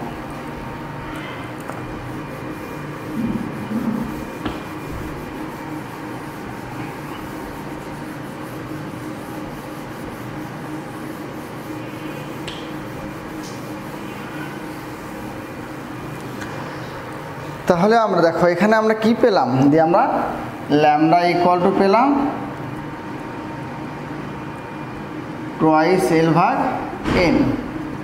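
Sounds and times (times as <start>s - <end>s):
cloth rubbing on whiteboard: 1.8s - 17.1s.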